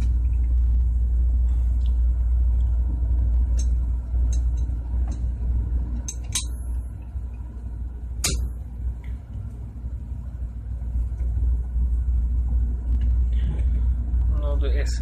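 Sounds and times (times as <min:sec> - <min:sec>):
low rumble of machinery: 0:00.0 - 0:15.0.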